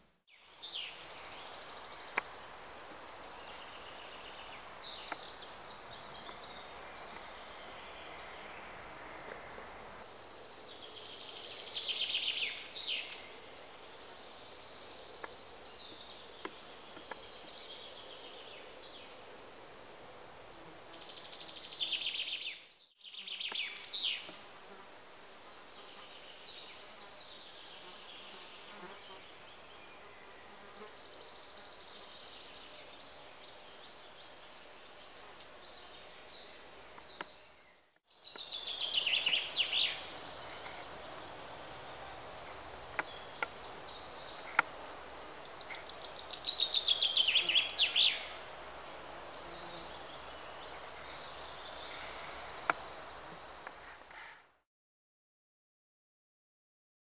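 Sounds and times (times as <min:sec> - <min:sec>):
faint steady hiss: 0:00.0 - 0:54.6.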